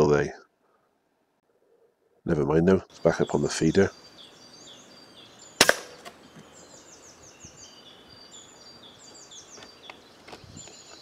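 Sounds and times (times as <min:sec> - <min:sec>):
woodland birds singing: 0:00.0 - 0:11.0
sharp loud crack: 0:05.6 - 0:06.1.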